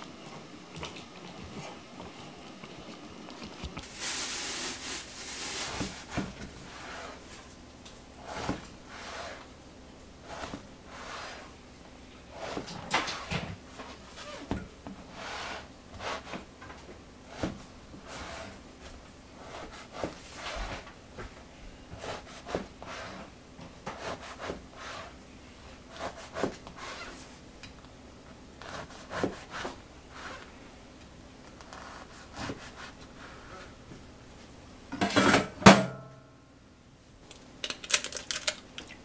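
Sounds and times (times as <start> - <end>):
knife sawing through crusty bread: 19.4 - 20.7, 24.0 - 25.2, 25.9 - 27.2, 28.6 - 30.4.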